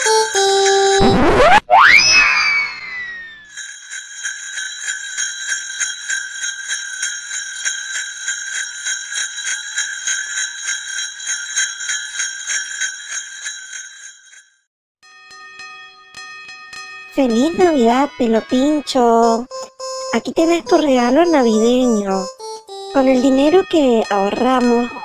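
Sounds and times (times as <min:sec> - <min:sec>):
sleigh bells shaken: 0:00.0 - 0:01.0, 0:03.5 - 0:14.5, 0:23.0 - 0:25.0
low steady ringing tone: 0:03.5 - 0:16.2, 0:19.2 - 0:25.0.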